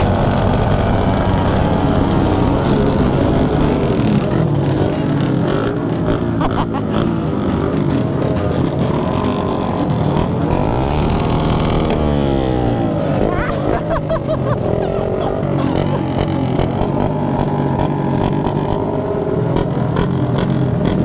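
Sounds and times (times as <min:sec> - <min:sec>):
motorcycle engines running: 0:00.0 - 0:21.0.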